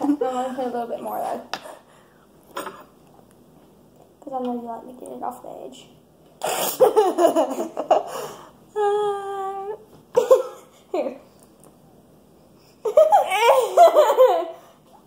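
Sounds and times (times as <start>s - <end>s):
girls laughing and giggling: 6.8s - 8.1s, 12.8s - 14.7s.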